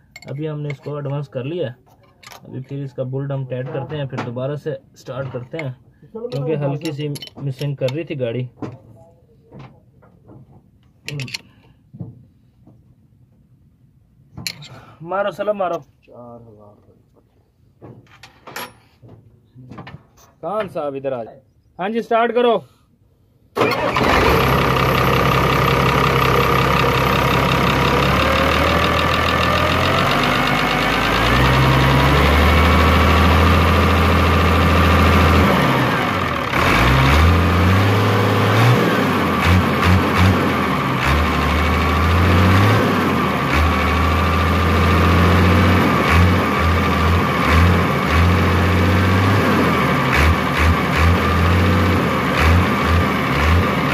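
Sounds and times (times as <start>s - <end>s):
diesel engine running: 23.6s - 53.9s.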